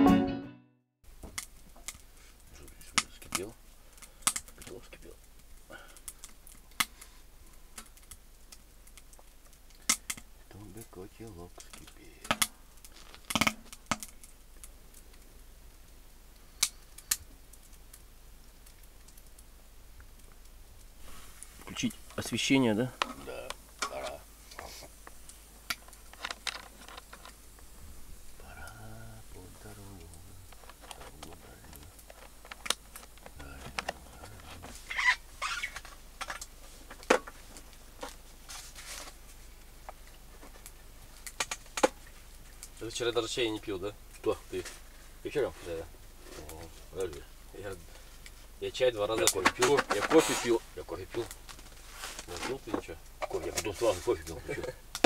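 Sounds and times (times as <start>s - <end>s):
small clicks and knocks: 11.5s - 15.3s, 25.0s - 27.7s, 30.0s - 39.1s, 39.8s - 42.8s
short rustles: 49.6s - 52.7s.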